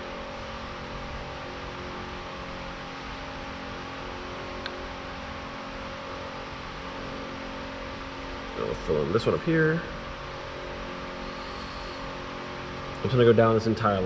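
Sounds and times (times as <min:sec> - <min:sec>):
steady mechanical hum: 0:00.0 - 0:14.0
small tick: 0:04.6 - 0:04.8
even hiss: 0:11.2 - 0:12.1.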